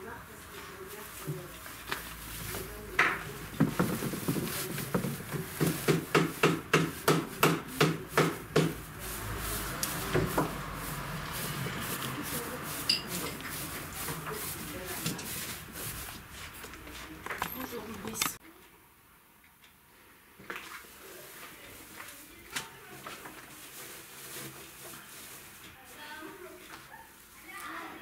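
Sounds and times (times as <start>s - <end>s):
upholstery stuffing rustling: 1.4s - 7.4s.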